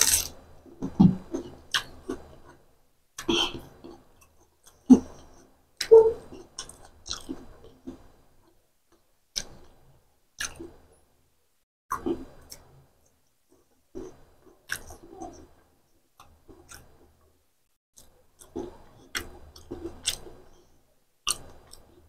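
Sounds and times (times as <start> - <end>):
person chewing: 0.0 - 0.4, 6.3 - 8.0, 13.5 - 15.4, 18.0 - 20.6, 21.2 - 22.0.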